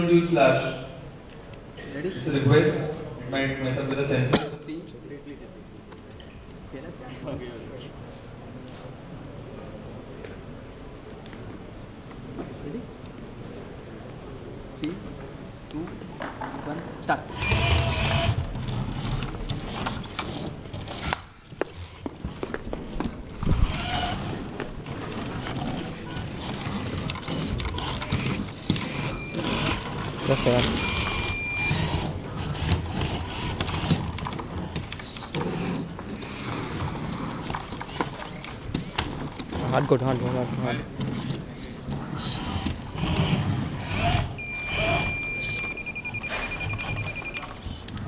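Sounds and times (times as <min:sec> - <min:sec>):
background noise: 0:00.0 - 0:48.0
electric gear motors whirring: 0:17.3 - 0:22.1, 0:23.4 - 0:41.3, 0:42.2 - 0:48.0
rapid beeping: 0:29.0 - 0:29.8, 0:30.4 - 0:32.0, 0:44.4 - 0:47.6
high electronic buzzer tone: 0:30.8 - 0:31.9, 0:44.4 - 0:47.6.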